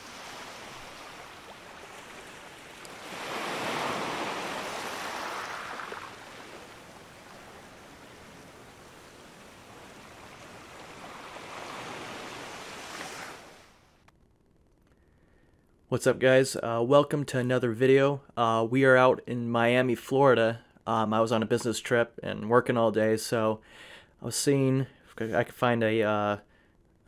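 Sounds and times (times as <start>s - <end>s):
ocean waves washing: 0.0s - 13.9s.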